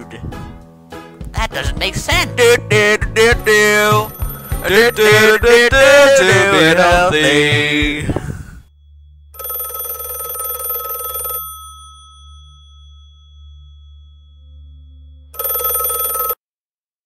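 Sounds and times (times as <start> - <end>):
telephone bell ringing: 3.5 - 6.4, 9.4 - 14.6, 15.3 - 16.4
steady low hum: 5.9 - 9.7.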